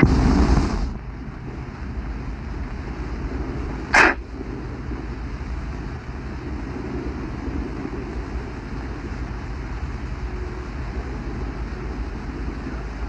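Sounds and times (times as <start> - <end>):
loud whoosh: 0.0 - 9.1
wind on microphone: 0.0 - 13.0.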